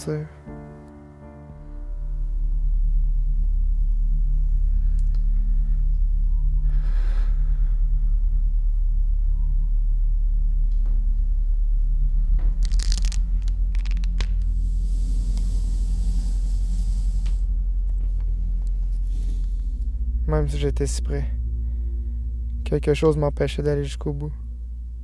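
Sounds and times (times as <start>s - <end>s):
deep rumbling drone: 0.0s - 25.0s
crackling crunching clicks: 12.5s - 14.5s
hissing swell: 12.9s - 17.7s.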